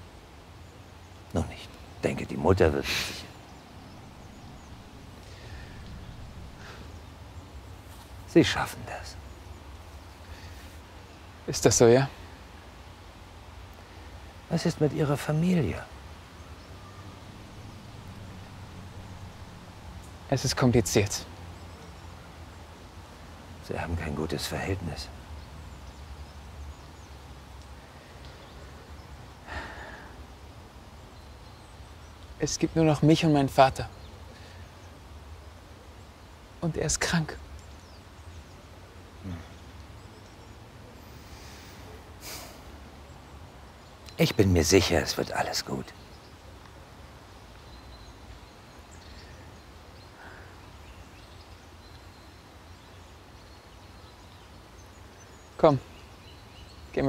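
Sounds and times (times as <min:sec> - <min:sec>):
even hiss: 0:00.0 - 0:57.0
faint bird chirps: 0:00.6 - 0:12.6, 0:13.8 - 0:57.0
steady low rumble: 0:03.4 - 0:07.8, 0:17.0 - 0:20.3
low rumble: 0:03.6 - 0:07.2.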